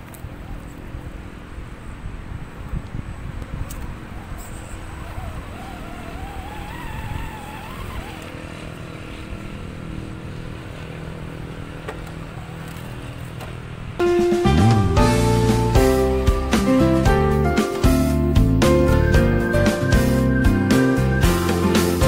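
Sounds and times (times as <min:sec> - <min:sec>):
electric motor whining: 0:03.8 - 0:13.1.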